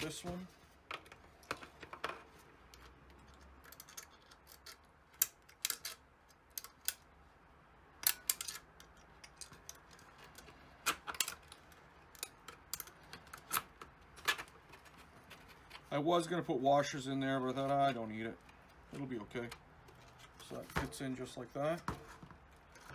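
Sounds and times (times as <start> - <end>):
metal parts clinking on plastic: 2.8 - 7.0, 8.0 - 15.8.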